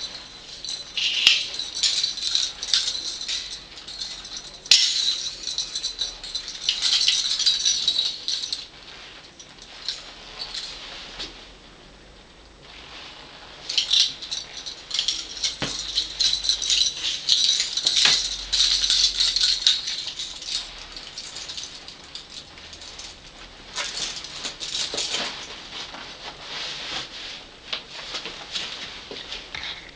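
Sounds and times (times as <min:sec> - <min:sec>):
metal fittings rattling and clicking: 0:00.0 - 0:08.7, 0:13.7 - 0:25.3
leather coat rustling: 0:00.0 - 0:11.4, 0:12.8 - 0:27.5.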